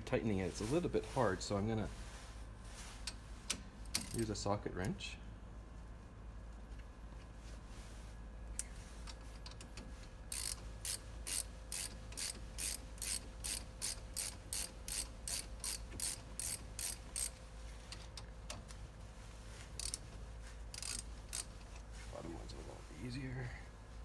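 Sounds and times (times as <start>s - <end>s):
ratchet wrench clicking: 3.9s - 4.2s, 10.3s - 17.4s, 19.8s - 20.0s, 20.7s - 21.6s.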